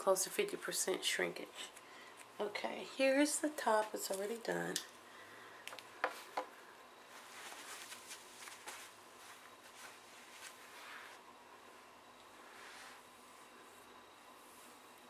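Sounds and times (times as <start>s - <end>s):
faint rustling: 7.0s - 15.0s.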